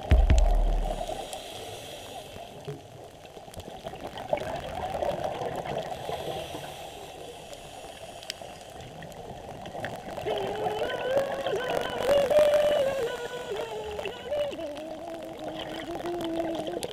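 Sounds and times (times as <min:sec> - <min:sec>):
underwater regulator bubbles gurgling: 0:00.0 - 0:01.5
faint clicks: 0:07.4 - 0:16.9.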